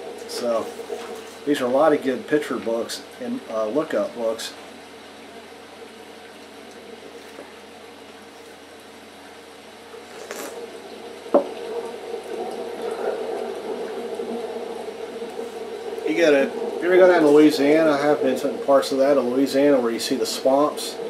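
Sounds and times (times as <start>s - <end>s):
room hum: 0.0s - 21.0s
person sipping and swallowing: 10.0s - 10.6s.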